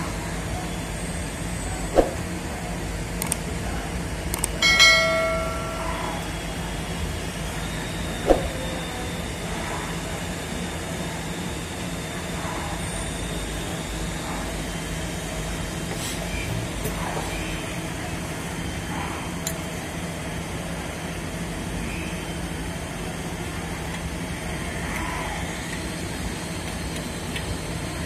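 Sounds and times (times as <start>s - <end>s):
steady low hum: 0.0s - 28.0s
ringing metal clang: 4.6s - 6.3s.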